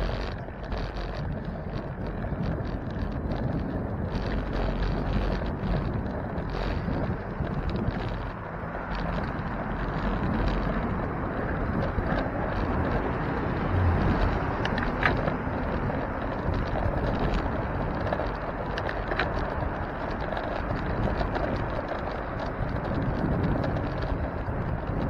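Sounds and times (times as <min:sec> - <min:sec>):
bicycle clicks and rattles: 0:00.0 - 0:25.0
wind and road noise: 0:00.0 - 0:25.0.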